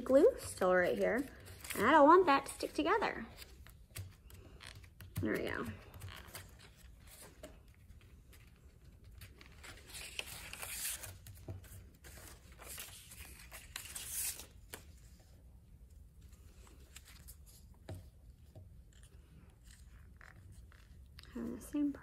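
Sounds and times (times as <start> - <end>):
paper rustling and scraping: 3.3 - 15.3.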